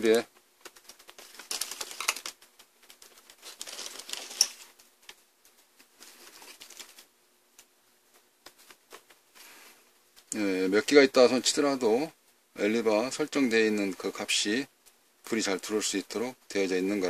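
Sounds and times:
wires clicking and scraping: 0:00.0 - 0:10.5
cloth rustling: 0:00.4 - 0:07.1.

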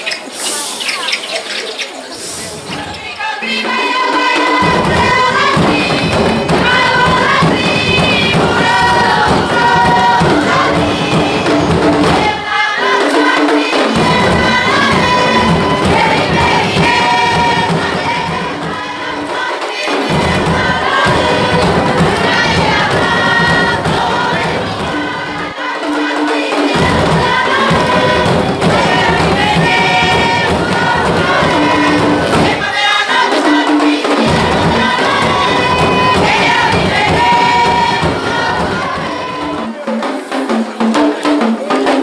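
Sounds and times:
women's chorus chanting: 0:01.8 - 0:42.0
low drum beat: 0:04.1 - 0:12.6, 0:13.9 - 0:19.4, 0:20.0 - 0:25.6, 0:26.8 - 0:32.8, 0:34.2 - 0:39.8.

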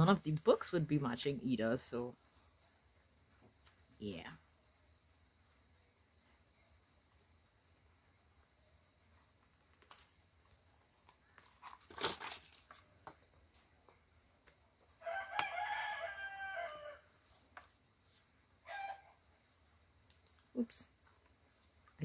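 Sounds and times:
rooster crowing: 0:15.0 - 0:17.2, 0:18.6 - 0:19.2.

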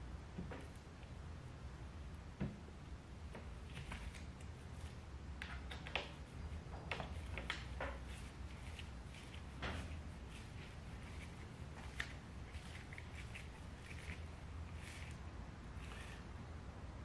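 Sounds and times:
low steady hum: 0:00.0 - 0:17.0
silencer being handled: 0:07.0 - 0:15.2.

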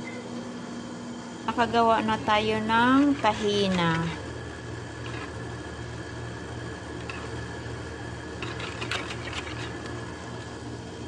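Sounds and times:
whisk stirring batter in bowl: 0:04.9 - 0:05.5, 0:08.3 - 0:10.0.

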